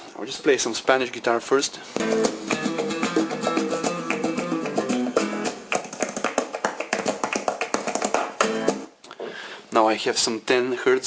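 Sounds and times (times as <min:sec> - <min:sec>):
guitar music over loudspeakers: 0:02.0 - 0:05.7, 0:08.4 - 0:08.8.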